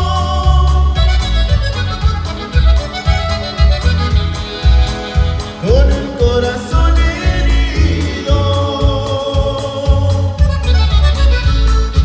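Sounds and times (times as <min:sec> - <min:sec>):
live band with accordion and saxophone: 0:00.0 - 0:12.0.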